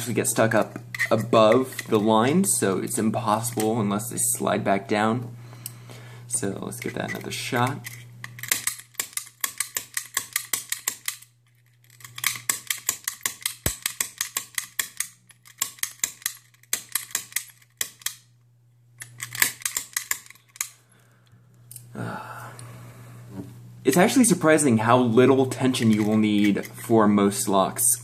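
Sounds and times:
snap gun clicking in lock: 8.2 - 11.3, 19.0 - 20.8.

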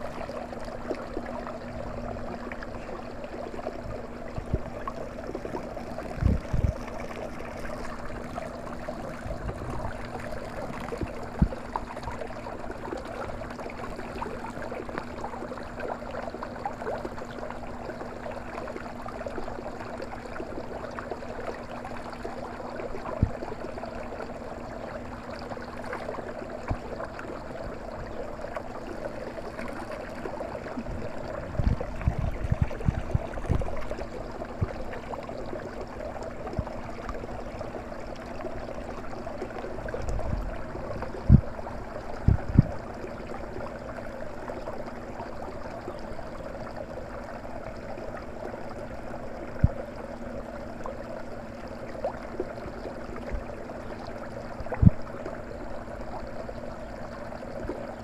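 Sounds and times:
dull low thumps: 42.2 - 42.8.

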